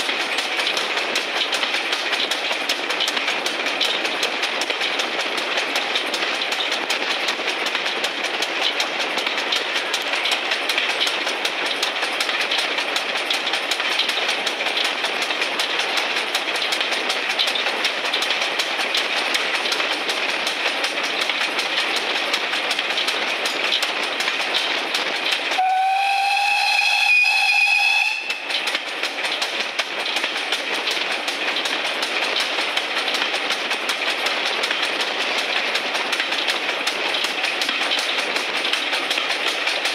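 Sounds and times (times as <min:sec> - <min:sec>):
train running noise: 0:00.0 - 0:39.9
wheels clicking on track: 0:00.0 - 0:39.9
steam locomotive whistle: 0:25.6 - 0:28.4.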